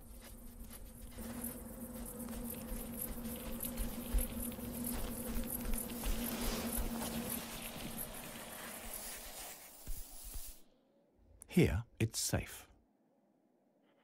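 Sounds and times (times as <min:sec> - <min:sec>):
steady low hum: 0:00.0 - 0:08.5
sand scratching and trickling: 0:00.0 - 0:10.6.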